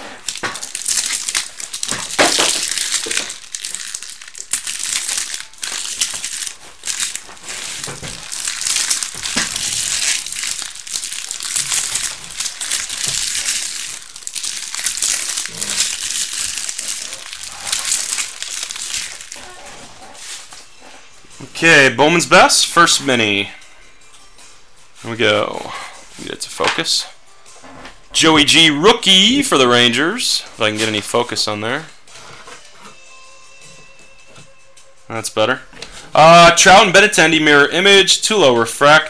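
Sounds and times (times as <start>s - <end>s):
card pack wrappers crinkling: 0.0s - 20.7s.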